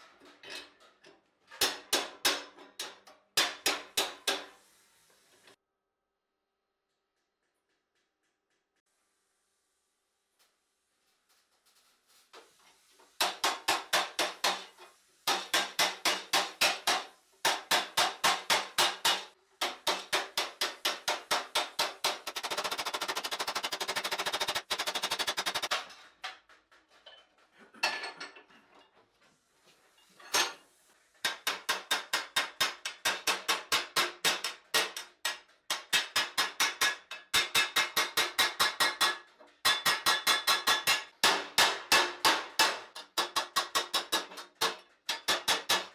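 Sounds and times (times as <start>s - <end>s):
hammer beating steel: 1.6s - 4.5s, 15.3s - 25.8s, 31.2s - 45.9s.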